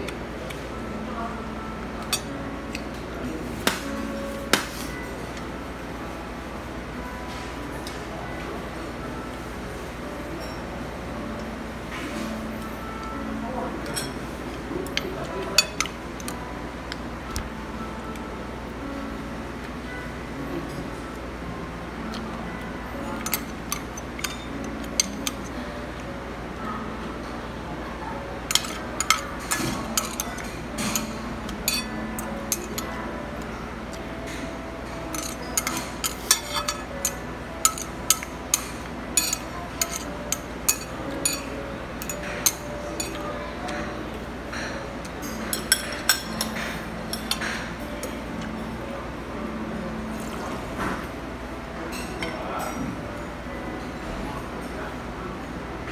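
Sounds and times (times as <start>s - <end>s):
restaurant background hum: 0.0s - 55.9s
cutlery clinking on a ceramic plate: 28.5s - 32.9s, 35.1s - 43.2s.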